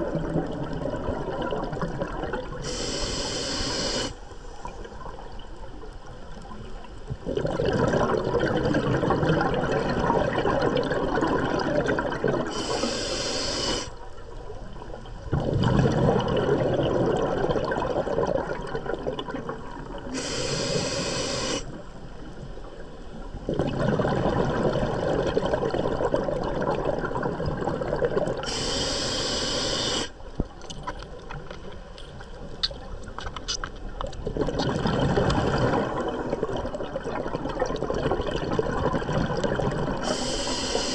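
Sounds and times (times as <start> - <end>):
exhaled bubbles rushing: 0.0 - 2.6, 7.1 - 12.8, 14.8 - 20.2, 23.4 - 28.5, 34.1 - 40.2
regulator inhalation hiss: 2.6 - 4.2, 12.5 - 14.0, 20.1 - 21.8, 28.4 - 30.2, 40.0 - 40.9.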